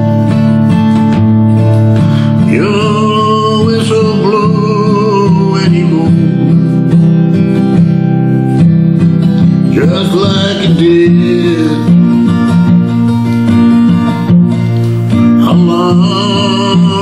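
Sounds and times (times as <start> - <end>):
acoustic guitar strumming: 0.0 - 17.0
man singing: 2.2 - 7.2, 9.4 - 12.7, 15.1 - 17.0.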